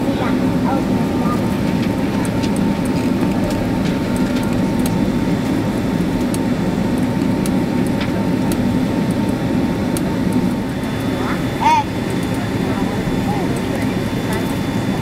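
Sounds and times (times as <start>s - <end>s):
jet engines rumbling in cabin: 0.0s - 15.0s.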